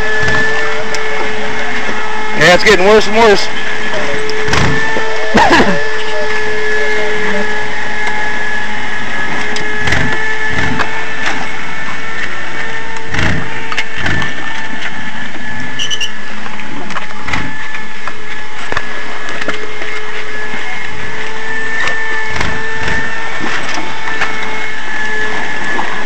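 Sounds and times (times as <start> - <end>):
car engine under load: 0.0 - 26.0
heavy knocks and crunches: 4.5 - 5.0, 9.8 - 11.0, 13.1 - 14.5, 22.3 - 23.1.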